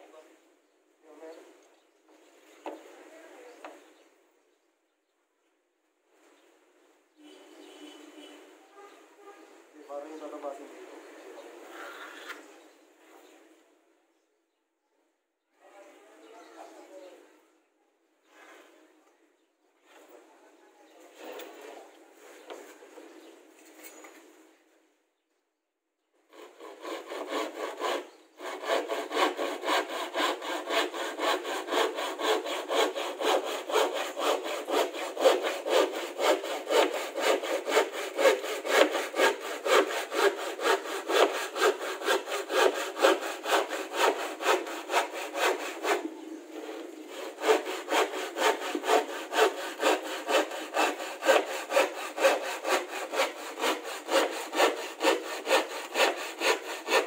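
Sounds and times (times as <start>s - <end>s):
handsaw cutting plywood: 26.3s - 57.0s.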